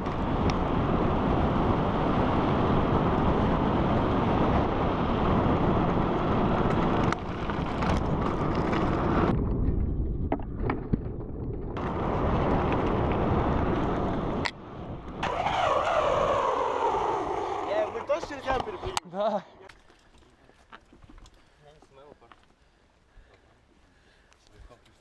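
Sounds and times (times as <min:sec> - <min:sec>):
strong wind buffeting microphone: 0:00.0 - 0:19.0.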